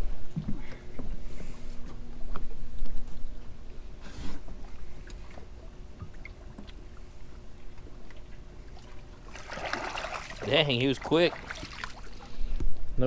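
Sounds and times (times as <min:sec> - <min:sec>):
splash in water: 0:09.3 - 0:10.5, 0:11.3 - 0:12.1.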